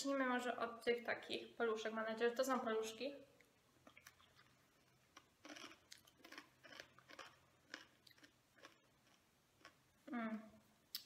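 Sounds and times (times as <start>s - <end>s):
chewing crunchy snack: 3.8s - 9.8s.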